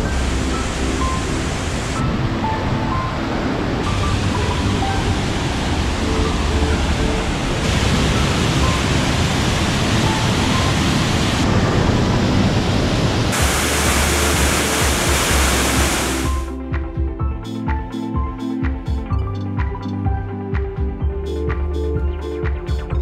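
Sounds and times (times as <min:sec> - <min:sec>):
waterfall roaring: 0:00.0 - 0:16.5
soft background music: 0:00.0 - 0:23.0.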